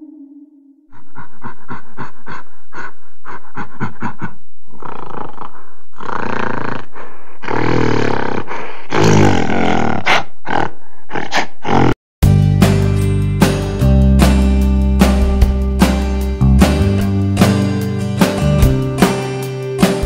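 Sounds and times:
animal grunting: 0:00.9 - 0:12.0
animal roaring: 0:04.7 - 0:11.9.

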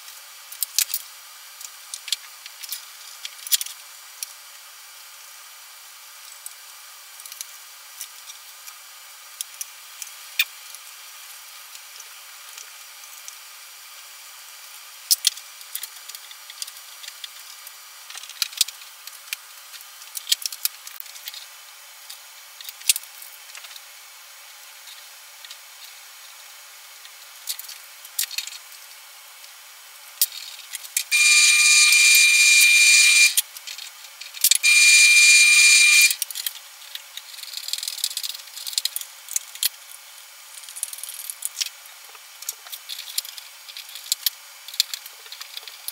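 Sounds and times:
small parts clicking and tapping: 0:00.5 - 0:04.4, 0:15.1 - 0:19.4, 0:20.0 - 0:21.5, 0:27.4 - 0:28.8, 0:30.2 - 0:40.0, 0:40.6 - 0:45.9.

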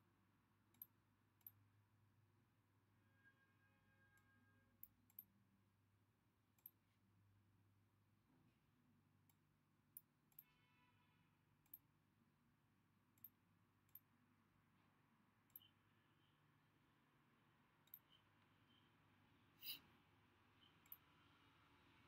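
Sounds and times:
computer mouse clicks: 0:00.7 - 0:01.6, 0:04.2 - 0:05.3, 0:06.6 - 0:06.8, 0:11.6 - 0:11.9, 0:13.1 - 0:14.1, 0:17.8 - 0:18.2, 0:19.6 - 0:19.8.

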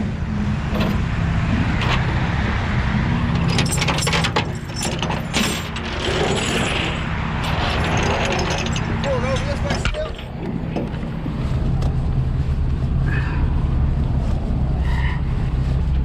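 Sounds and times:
metal chain clinking: 0:03.3 - 0:10.5
diesel engine idling: 0:07.0 - 0:16.0.

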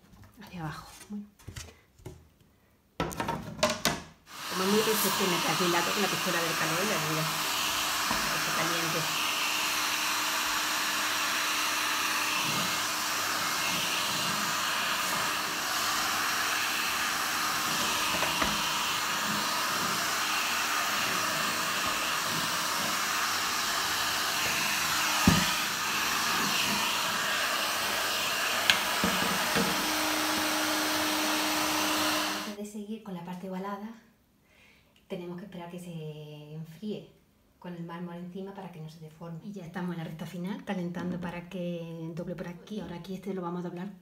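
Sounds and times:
heat gun blowing air: 0:04.3 - 0:32.6.

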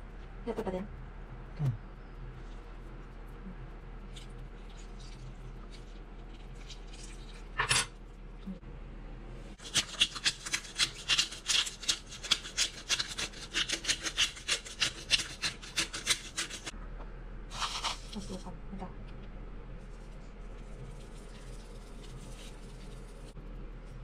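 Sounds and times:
pepper mill grinding: 0:09.6 - 0:16.7.

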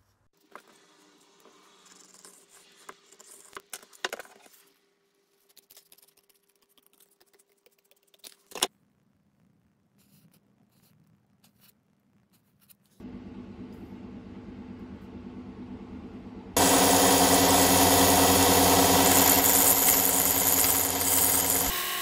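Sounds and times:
pencil scratching on paper: 0:01.4 - 0:03.6, 0:10.0 - 0:13.0
scissors snipping paper: 0:05.4 - 0:08.7.

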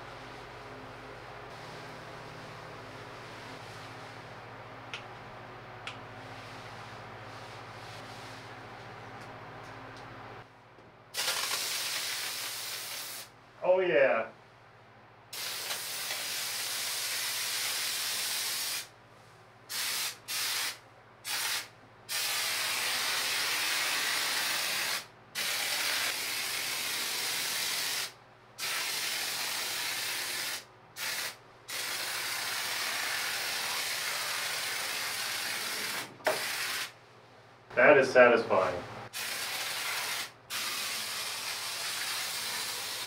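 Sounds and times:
spray foam hissing: 0:11.2 - 0:13.3, 0:15.4 - 0:18.9, 0:19.7 - 0:36.9, 0:39.2 - 0:43.0.

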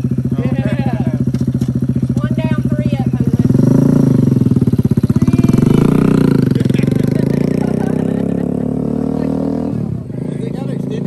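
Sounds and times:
motorcycle engine pulling away: 0:00.0 - 0:11.0.

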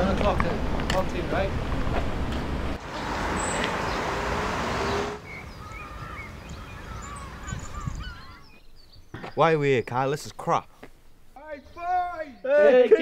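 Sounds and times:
steady rushing outdoor noise: 0:00.0 - 0:07.4
small birds chirping: 0:02.8 - 0:12.8.

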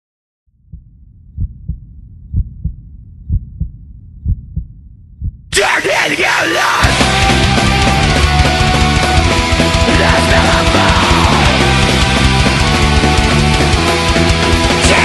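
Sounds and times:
low rumble: 0:00.5 - 0:05.5
muffled heartbeat thumps: 0:00.6 - 0:05.5.

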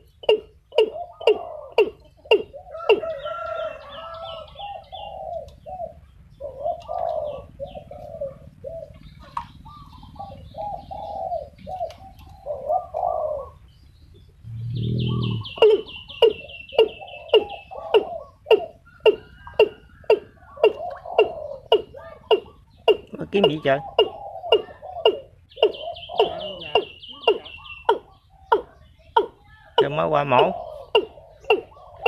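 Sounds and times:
bird deep booming call: 0:00.0 - 0:11.9, 0:14.4 - 0:32.0
bird sharp calls: 0:00.0 - 0:32.0
bird gurgling notes: 0:14.4 - 0:28.1
bird rapid buzzing call: 0:14.5 - 0:32.0.

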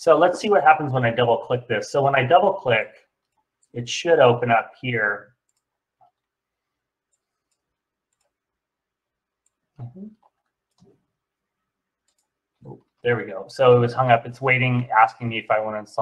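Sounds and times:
computer mouse clicks: 0:05.4 - 0:06.4, 0:07.1 - 0:08.4, 0:10.2 - 0:11.0, 0:12.0 - 0:13.0.

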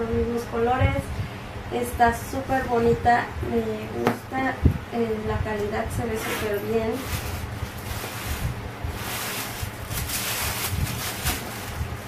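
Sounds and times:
packing stuffing crinkling: 0:07.0 - 0:11.8.

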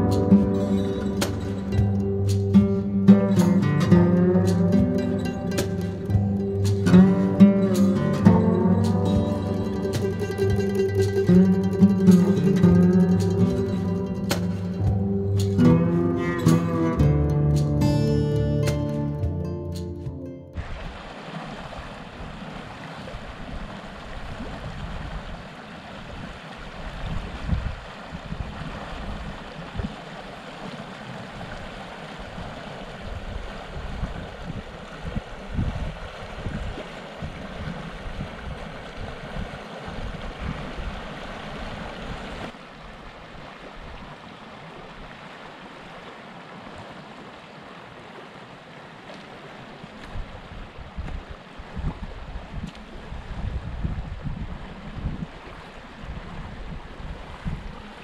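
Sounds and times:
stream rushing over rocks: 0:00.0 - 0:58.0
wind gusting on microphone: 0:23.1 - 0:30.0, 0:32.2 - 0:42.5, 0:50.1 - 0:58.0.

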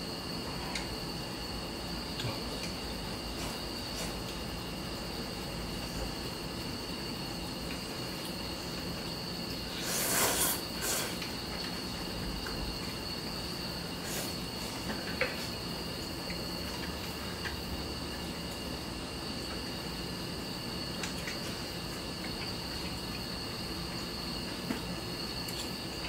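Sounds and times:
crickets chirring: 0:00.0 - 0:26.0
slurp of noodles: 0:09.7 - 0:11.2.

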